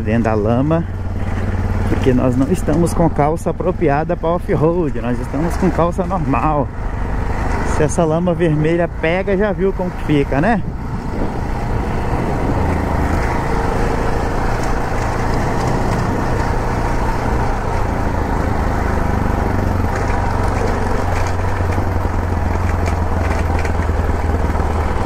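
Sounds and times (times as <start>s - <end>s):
motorcycle engine running: 0.0s - 25.0s.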